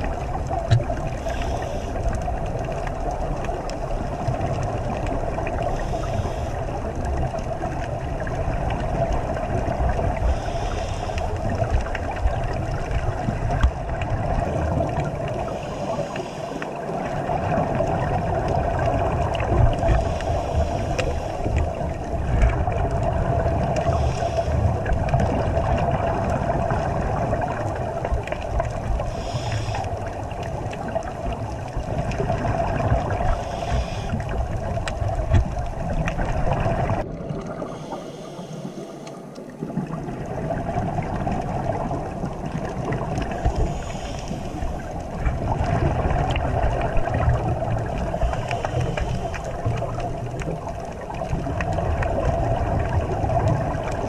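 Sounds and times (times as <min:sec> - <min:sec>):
muffled underwater rumble and hiss: 0:00.0 - 0:54.0
regulator bubbling hiss: 0:03.9 - 0:06.9, 0:09.2 - 0:54.0.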